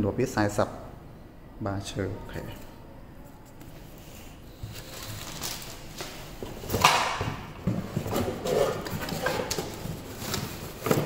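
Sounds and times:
plastic and cardboard rustling: 0:03.4 - 0:11.0.

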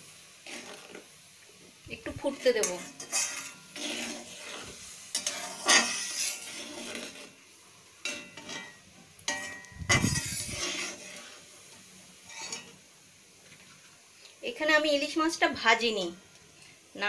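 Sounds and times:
metal spatula scraping a pan: 0:00.4 - 0:01.1, 0:02.0 - 0:07.4, 0:08.0 - 0:11.5, 0:12.2 - 0:12.8.

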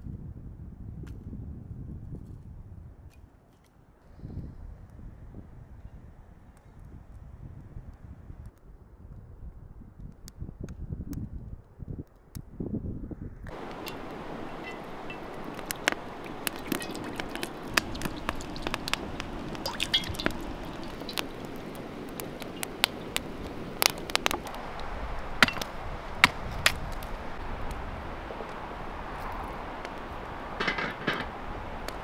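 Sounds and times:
wood fire crackling and popping: 0:13.5 - 0:32.0.

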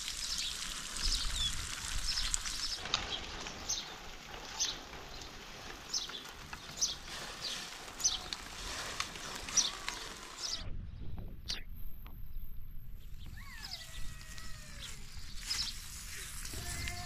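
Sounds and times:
water spraying from hose leak: 0:00.0 - 0:10.6.

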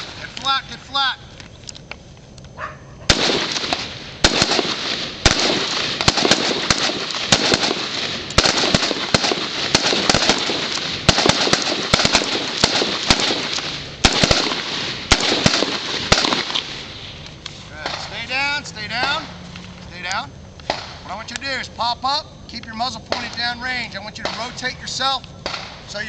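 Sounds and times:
rifle gunshots: 0:03.1 - 0:17.2, 0:25.4 - 0:25.8.

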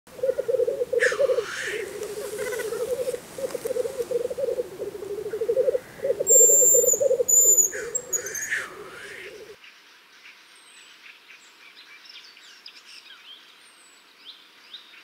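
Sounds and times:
grouse pulsing cooing song: 0:00.1 - 0:09.6.

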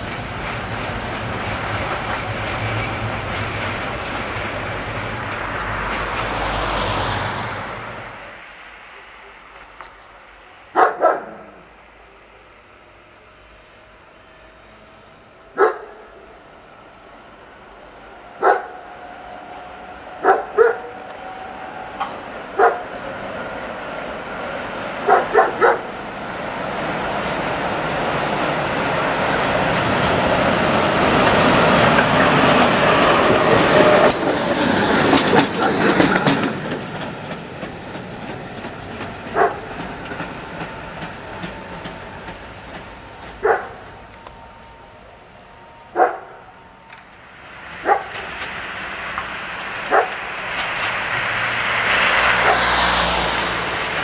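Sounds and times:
wheels clicking over rail joints: 0:00.0 - 0:07.0, 0:19.5 - 0:26.1, 0:26.7 - 0:44.4, 0:47.8 - 0:54.0
tram wheels rumbling on rails: 0:00.0 - 0:54.0
dog barking: 0:10.8 - 0:11.6, 0:15.6 - 0:16.0, 0:18.4 - 0:18.8, 0:20.2 - 0:21.0, 0:22.6 - 0:22.9, 0:25.0 - 0:25.9, 0:39.3 - 0:39.7, 0:43.4 - 0:43.8, 0:46.0 - 0:46.4, 0:47.8 - 0:48.2, 0:49.9 - 0:50.2, 0:52.4 - 0:52.7.

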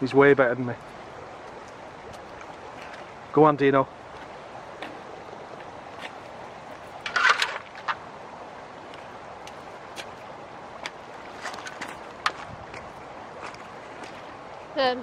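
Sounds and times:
rushing river water: 0:00.0 - 0:15.0
metal hubcap clattering on stones: 0:07.0 - 0:08.0.

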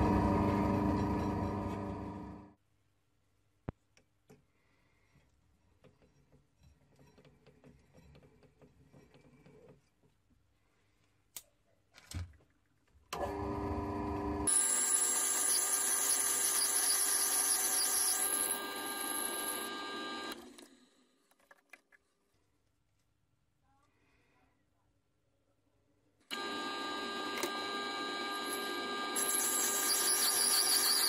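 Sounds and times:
metal lathe humming: 0:00.0 - 0:02.5, 0:26.3 - 0:31.0
high ringing of tool cutting brass: 0:14.5 - 0:19.7, 0:29.2 - 0:31.0.

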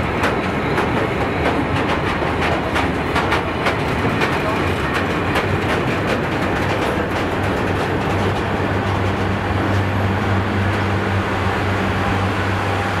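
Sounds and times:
wheel clicks on rails: 0:00.0 - 0:10.0
train wheels rumbling on rails: 0:00.0 - 0:13.0.

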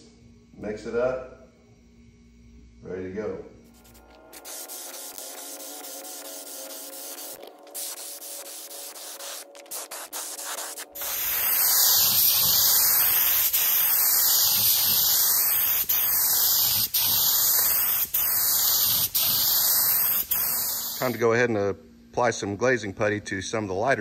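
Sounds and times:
spray gun hissing: 0:03.8 - 0:21.2.

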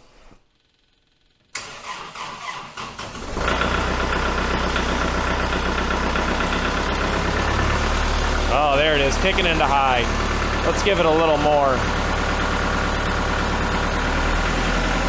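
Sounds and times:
diesel engine idling: 0:03.1 - 0:15.0.

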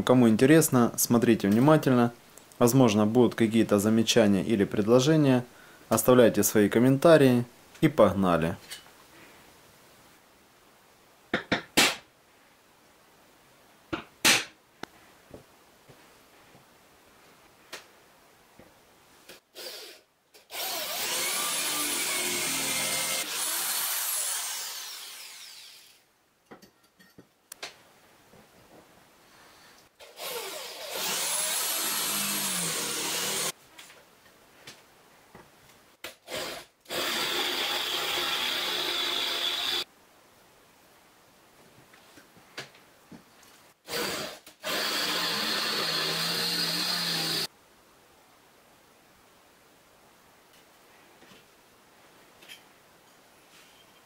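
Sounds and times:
cordless drill boring through metal: 0:19.6 - 0:26.0, 0:30.0 - 0:33.5, 0:36.3 - 0:39.8, 0:43.9 - 0:47.5.

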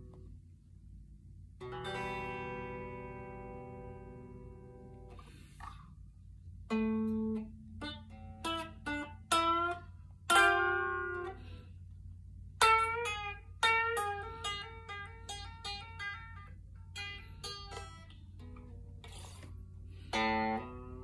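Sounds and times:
low steady hum: 0:00.0 - 0:21.0
clean electric guitar notes: 0:06.7 - 0:11.6, 0:20.0 - 0:21.0.

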